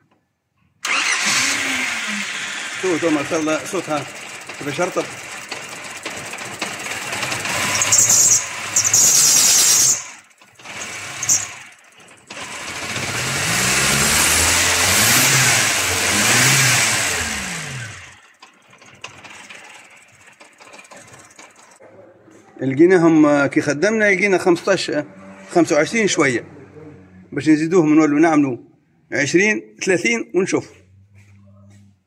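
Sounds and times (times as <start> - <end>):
engine revving: 0.8 - 18.4, 24.6 - 27.8.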